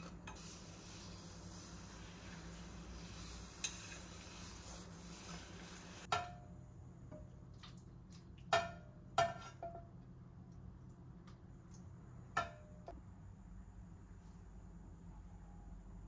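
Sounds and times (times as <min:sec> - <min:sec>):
paper towel rubbing a pot: 0:00.0 - 0:06.1.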